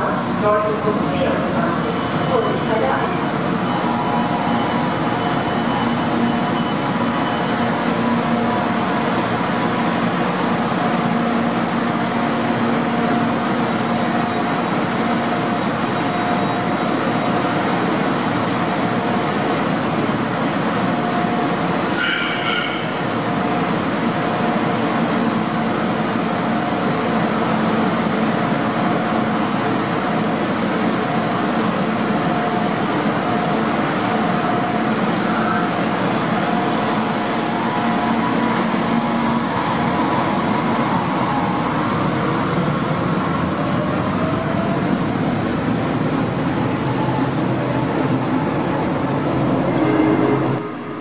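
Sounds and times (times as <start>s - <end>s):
train whine rising in pitch: 48.8s - 51.0s.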